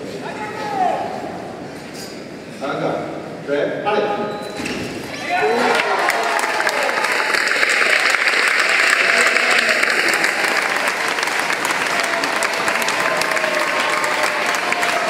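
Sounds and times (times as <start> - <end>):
large crowd applauding: 5.3 - 15.0.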